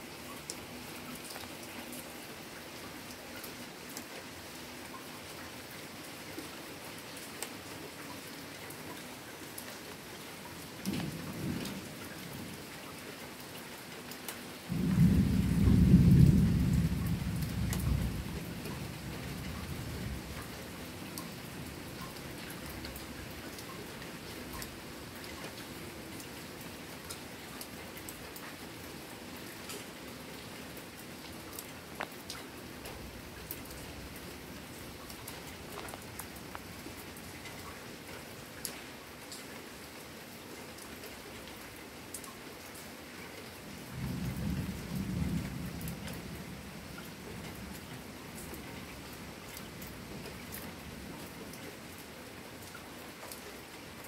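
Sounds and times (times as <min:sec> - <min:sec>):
steady rain hissing: 0:00.0 - 0:54.0
thunder rumbling: 0:14.7 - 0:20.4, 0:44.0 - 0:46.9.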